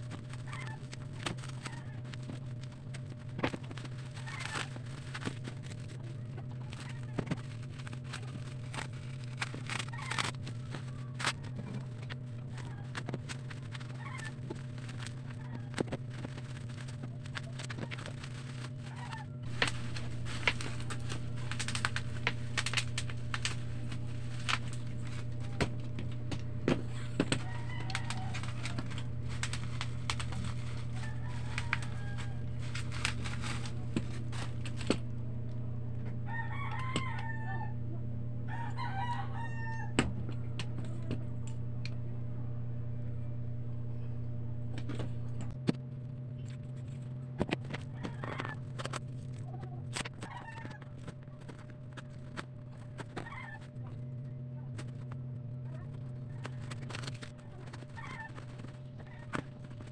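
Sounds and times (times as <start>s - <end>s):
packaging rustling and clicking: 0.0s - 35.1s, 46.4s - 53.6s, 55.8s - 59.9s
steady low hum: 0.0s - 59.9s
rooster crowing: 26.9s - 33.8s, 36.2s - 40.1s.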